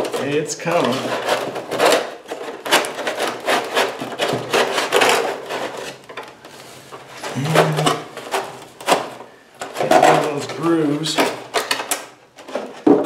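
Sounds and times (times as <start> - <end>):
foam scraping and squeaking: 7.1 - 8.5.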